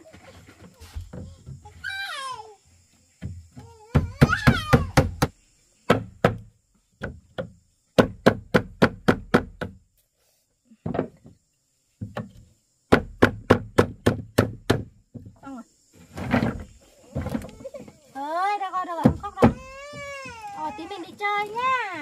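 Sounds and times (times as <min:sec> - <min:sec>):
tool striking wood: 0:04.0 - 0:09.8, 0:12.0 - 0:15.3.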